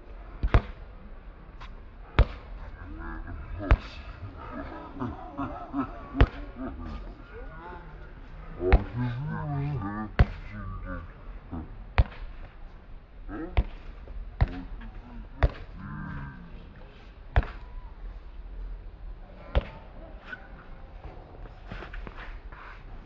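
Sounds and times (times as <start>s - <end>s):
men's voices calling: 1.9s - 11.9s, 14.4s - 16.9s.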